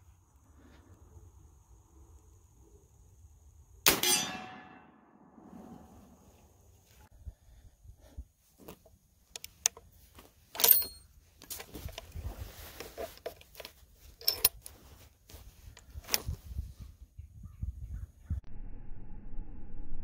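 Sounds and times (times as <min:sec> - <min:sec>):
ringing metal clink: 0:03.9 - 0:05.1, 0:10.6 - 0:11.1
rifle loading metallic clicks: 0:10.5 - 0:12.1, 0:13.1 - 0:14.7.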